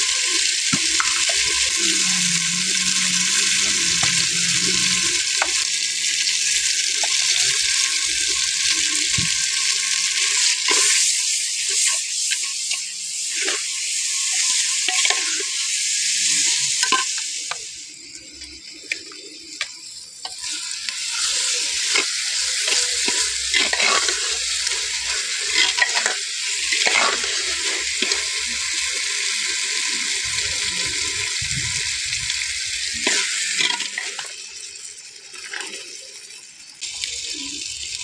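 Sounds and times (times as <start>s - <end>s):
vegetables sizzling in a pot: 0.0s - 38.0s
steel ladle scraping a pot: 21.2s - 28.2s.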